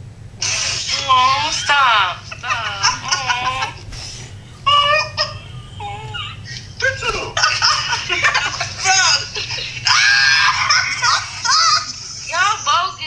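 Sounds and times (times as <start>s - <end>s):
people laughing: 0.4s - 4.0s, 4.7s - 13.0s.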